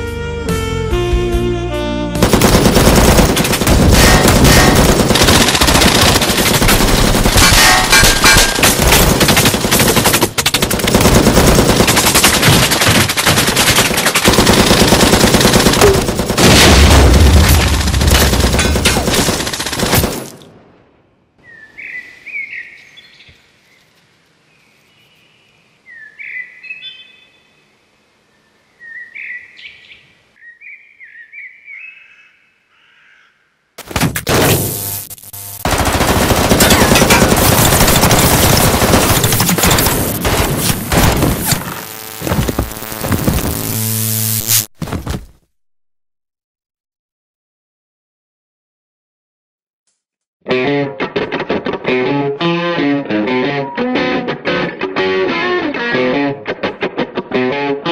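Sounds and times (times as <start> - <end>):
automatic gunfire: 2.2 - 20.4, 35.6 - 41.5
heavy explosion: 16.4 - 18.7
birds calling: 21.4 - 23.9, 25.9 - 27.5, 28.4 - 33.6.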